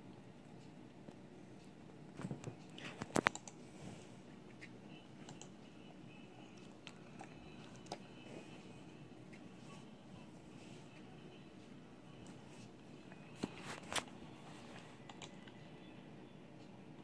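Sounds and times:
computer mouse clicks: 3.0 - 3.6, 5.2 - 5.5, 15.1 - 15.6.

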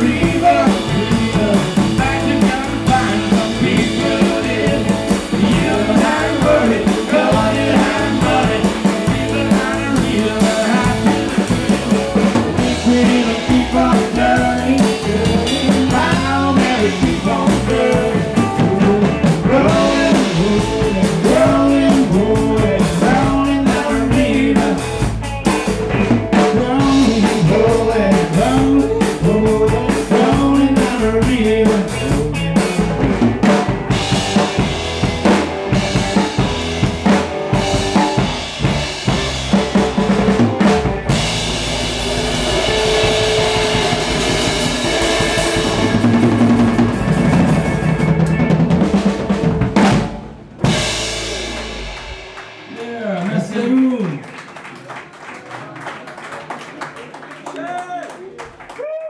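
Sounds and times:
person singing: 0.0 - 33.3
drum kit beat: 0.0 - 54.2
guitar: 0.0 - 54.2.

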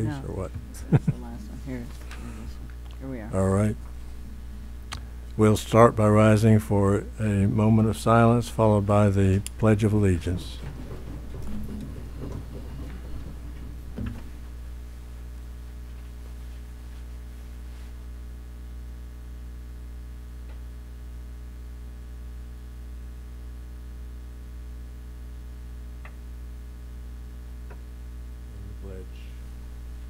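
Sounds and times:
low electrical hum: 0.0 - 30.0.

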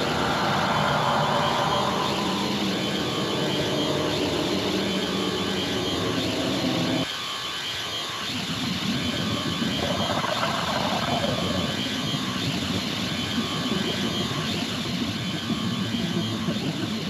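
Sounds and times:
droning electronic noise: 0.0 - 17.0.

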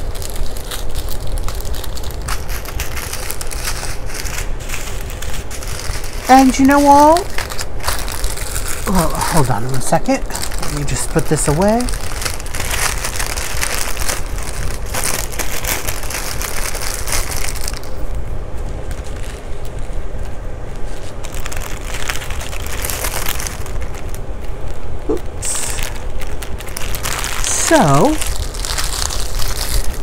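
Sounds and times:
plastic bags crinkling: 0.0 - 30.0.

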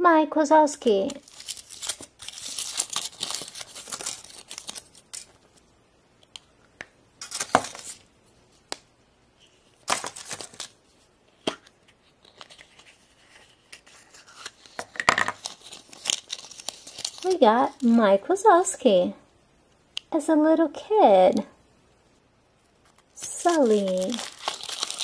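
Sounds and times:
foil wrapper crinkling and tearing: 1.0 - 5.7, 7.2 - 8.0, 9.8 - 10.8, 12.0 - 18.0, 22.8 - 25.0.

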